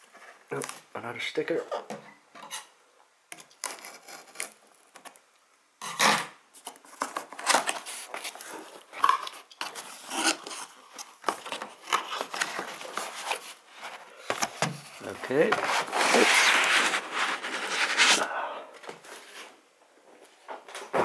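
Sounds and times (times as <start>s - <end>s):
cardboard flaps scraping and rustling: 9.6s - 18.3s.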